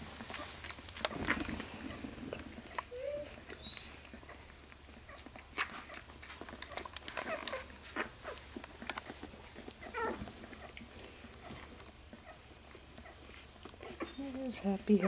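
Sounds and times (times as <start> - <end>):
puppies sucking and smacking: 0.0 - 15.0
puppy squeaks: 2.9 - 3.9, 9.8 - 10.7, 13.8 - 14.4.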